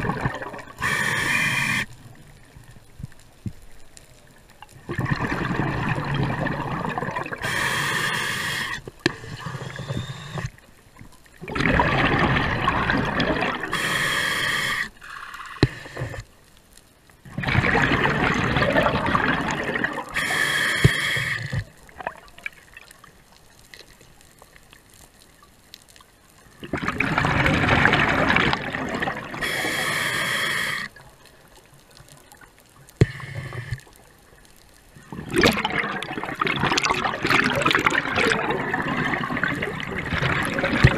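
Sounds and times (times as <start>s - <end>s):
exhaled bubbles rushing: 0.0s - 0.9s, 4.8s - 7.5s, 11.4s - 13.8s, 17.3s - 20.2s, 26.6s - 29.5s, 35.1s - 40.9s
regulator inhale hiss: 0.8s - 2.0s, 7.4s - 10.6s, 13.7s - 16.3s, 20.1s - 21.7s, 29.4s - 31.0s, 33.0s - 34.0s.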